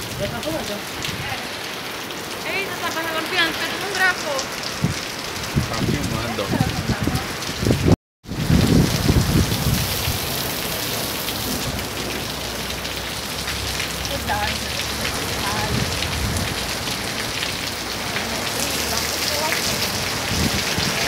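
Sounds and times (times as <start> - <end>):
heavy rain on pavement: 0.0 - 21.0.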